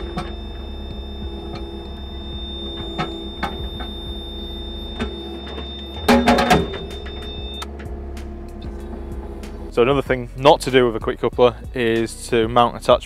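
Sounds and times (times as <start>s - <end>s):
metallic clanking: 0.0s - 10.0s
diesel engine running: 0.0s - 12.4s.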